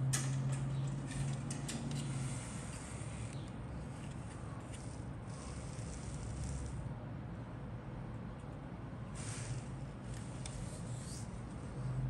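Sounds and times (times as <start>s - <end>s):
low hum with faint hiss: 0.0s - 12.0s.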